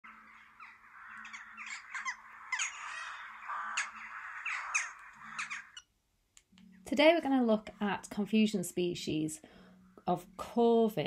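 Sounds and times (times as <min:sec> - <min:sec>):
crows cawing: 0:00.0 - 0:05.8.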